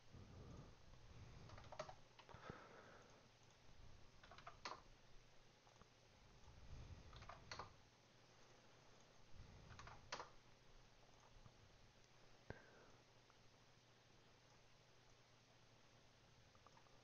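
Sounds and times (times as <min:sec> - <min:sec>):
keyboard keystrokes: 0:01.5 - 0:02.4, 0:04.2 - 0:04.9, 0:07.1 - 0:07.8, 0:09.7 - 0:10.4
mouse clicks: 0:01.5 - 0:02.4, 0:04.2 - 0:04.9, 0:07.1 - 0:07.8, 0:09.7 - 0:10.4.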